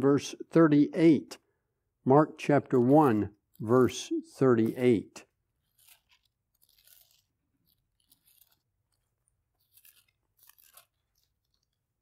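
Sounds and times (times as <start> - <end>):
thin pages turning: 4.6 - 12.0.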